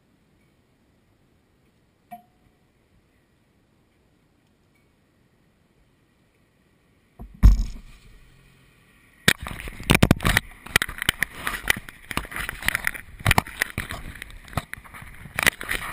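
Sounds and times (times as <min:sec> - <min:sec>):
scrapes and knocks on microphone: 0:07.2 - 0:08.2, 0:09.3 - 0:15.9
cloth rubbing on microphone: 0:09.4 - 0:15.9.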